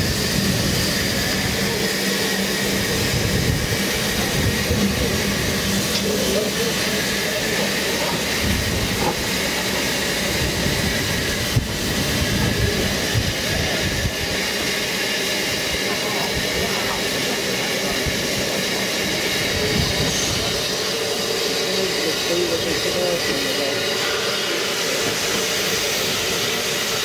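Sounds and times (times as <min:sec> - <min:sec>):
steam locomotive hissing: 0:00.0 - 0:27.0
wind buffeting microphone: 0:02.8 - 0:05.7.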